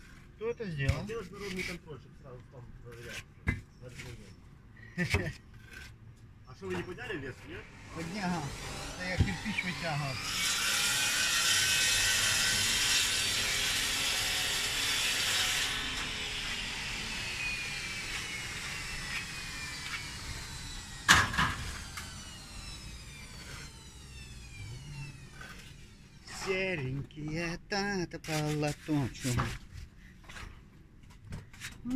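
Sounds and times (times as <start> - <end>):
power tool whine winding down: 7.7 - 26.6.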